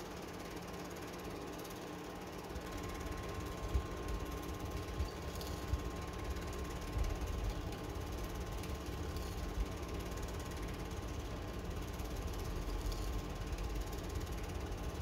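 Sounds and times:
film projector whirring: 0:00.0 - 0:15.0
projector mechanism rattling: 0:00.8 - 0:15.0.

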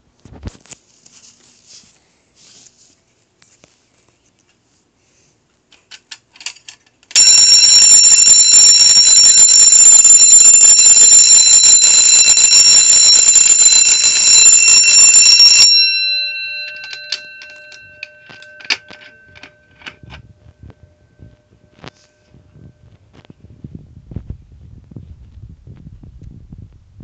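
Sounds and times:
fire alarm bell ringing: 0:07.2 - 0:22.7.

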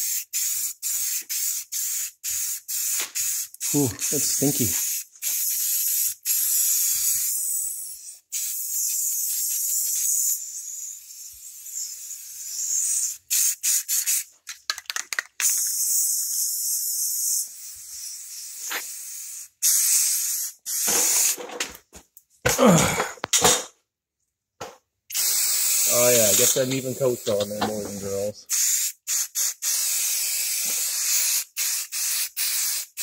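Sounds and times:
spray-paint can hissing: 0:00.0 - 0:21.5, 0:25.1 - 0:33.0.

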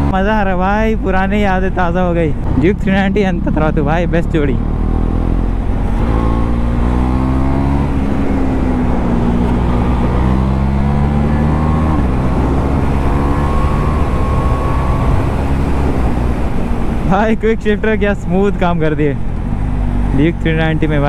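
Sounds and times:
motorcycle engine accelerating: 0:02.3 - 0:17.2, 0:19.2 - 0:21.0.

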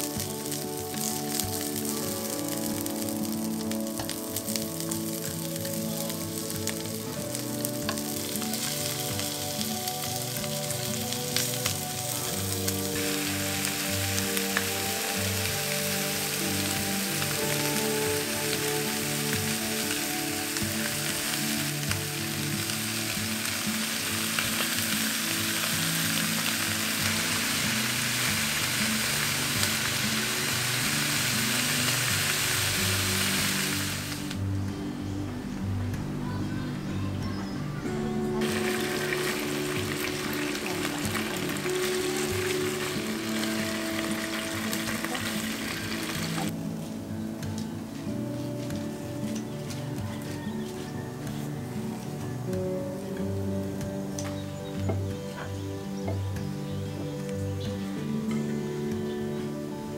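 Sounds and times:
food sizzling in a frying pan: 0:00.0 - 0:34.4, 0:38.4 - 0:46.6
soft background music: 0:00.0 - 0:59.9.

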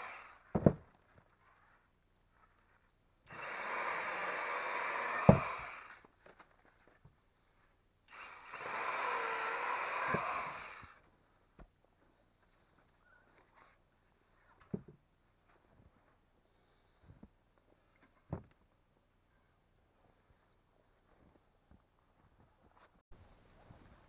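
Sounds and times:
electric chainsaw cutting wood: 0:00.0 - 0:00.6, 0:03.3 - 0:06.1, 0:08.1 - 0:11.0.

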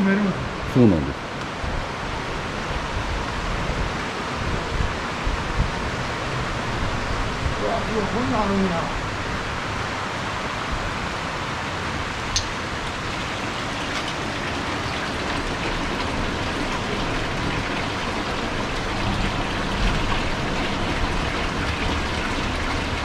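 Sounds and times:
sharp click: 0:12.3 - 0:12.5
running water pouring: 0:12.4 - 0:23.0.

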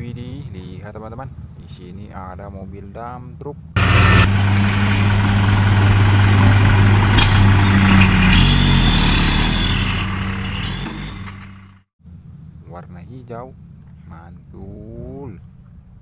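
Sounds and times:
diesel truck engine running: 0:03.8 - 0:11.8.

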